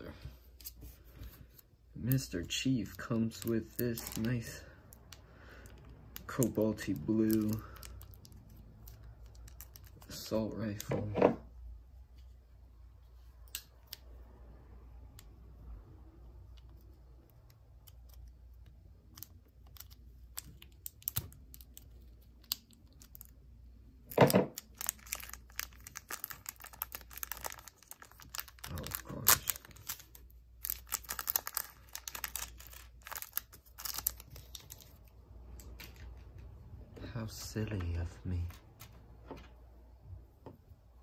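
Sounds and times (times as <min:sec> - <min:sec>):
packaging crinkling and rustling: 0:24.1 - 0:36.4.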